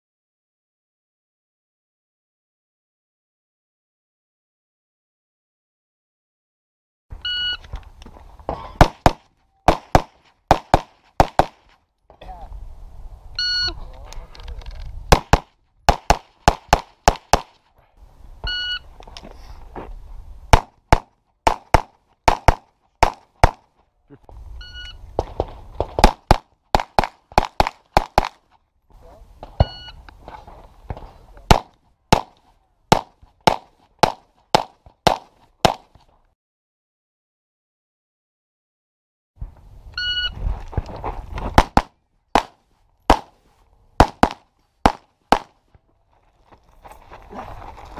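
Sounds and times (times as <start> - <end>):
pistol shots: 8.8 - 11.6, 15.1 - 17.5, 20.5 - 23.6, 25.8 - 28.4, 31.5 - 35.9, 41.6 - 43.4, 44.0 - 45.6
shot timer beep: 29.6 - 30.0.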